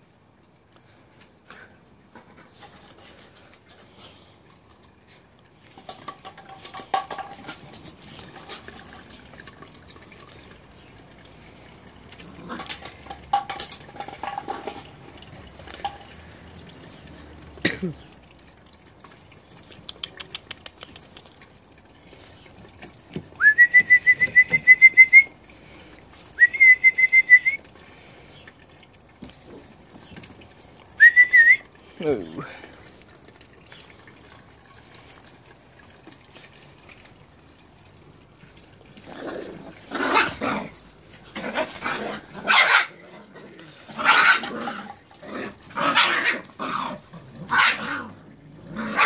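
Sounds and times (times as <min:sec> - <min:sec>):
whistle trilling blasts: 0:23.4 - 0:25.3, 0:26.4 - 0:27.6, 0:31.0 - 0:31.6.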